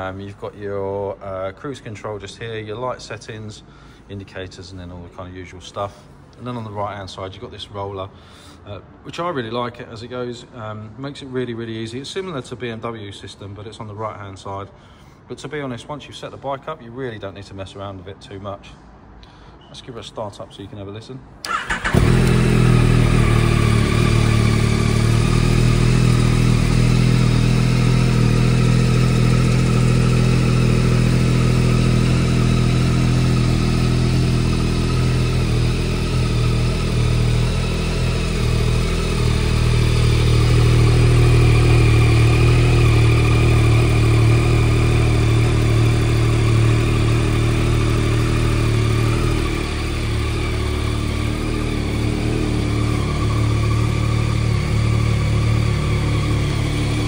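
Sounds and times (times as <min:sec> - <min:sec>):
motorcycle engine idling: 0:21.5 - 0:57.0.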